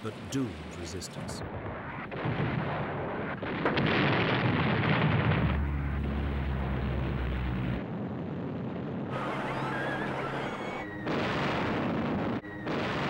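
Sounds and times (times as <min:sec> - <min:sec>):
rumbling explosions: 0:01.3 - 0:13.0
steady low drone: 0:04.9 - 0:08.2.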